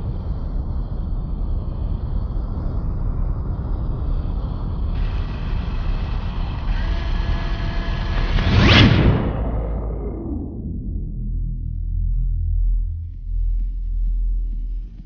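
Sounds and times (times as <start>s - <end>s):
deep steady rumble: 0.0s - 15.0s
bright hiss: 5.0s - 8.8s.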